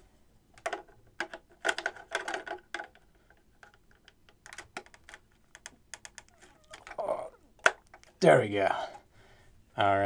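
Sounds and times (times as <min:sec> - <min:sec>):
plastic toy clicking and tapping: 0:00.6 - 0:07.0.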